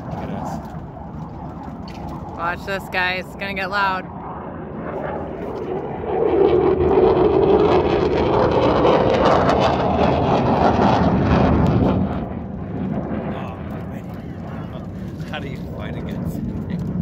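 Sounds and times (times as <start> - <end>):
fighter jet roaring past: 0.0 - 17.0.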